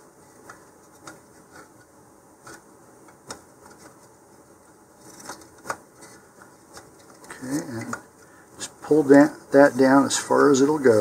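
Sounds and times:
small irregular clicks: 0.4 - 8.4.

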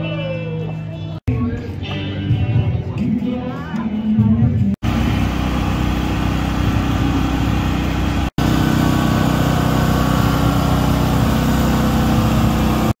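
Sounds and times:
engine idling: 4.8 - 13.0.

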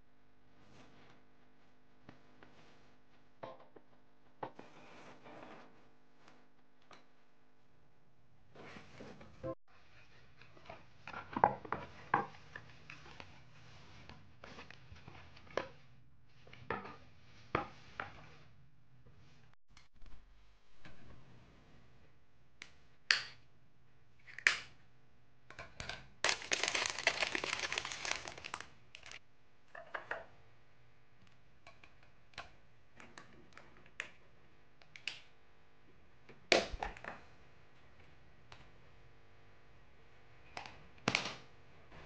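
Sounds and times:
plastic crinkling: 26.2 - 29.2.

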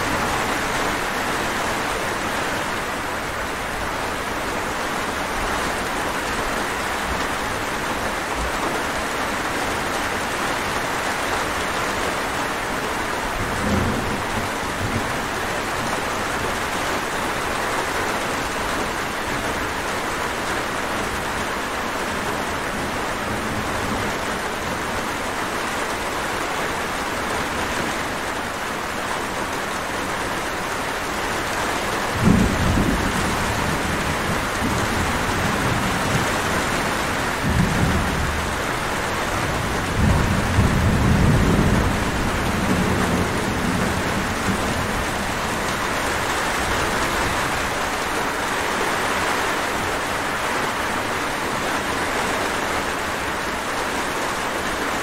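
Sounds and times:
steady rain falling: 0.0 - 55.0
thunder rumbling: 32.0 - 48.4.

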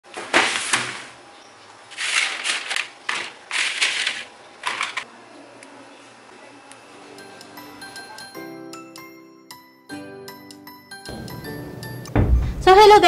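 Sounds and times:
bread sticks scraping on metal tray: 1.9 - 4.3.

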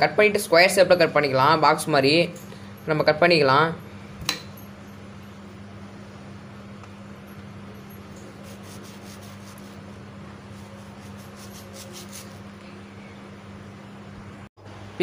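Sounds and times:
steady low hum: 0.0 - 15.0
knife slicing and scraping mango: 8.2 - 12.5.

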